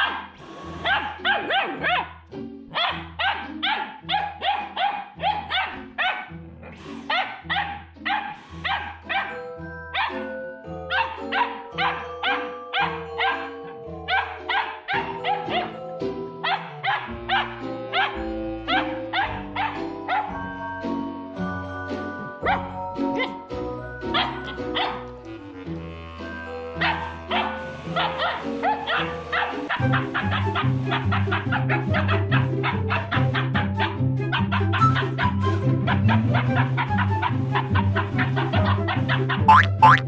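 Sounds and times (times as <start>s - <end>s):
puppy barking: 0.0s - 10.3s, 10.9s - 15.8s, 16.4s - 20.5s, 22.4s - 23.4s, 24.0s - 25.1s, 26.8s - 40.0s
background music with bass: 22.4s - 40.0s.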